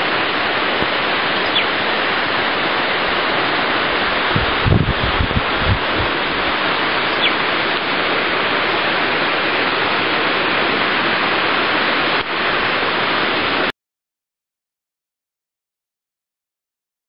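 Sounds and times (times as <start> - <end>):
waterfall rushing: 0.0 - 13.7
wind thumps on microphone: 4.1 - 6.5.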